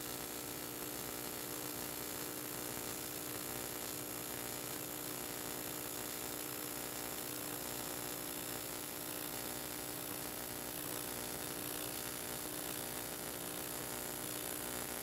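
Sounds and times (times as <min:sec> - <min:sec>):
welding arc buzzing: 0:06.4 - 0:15.0.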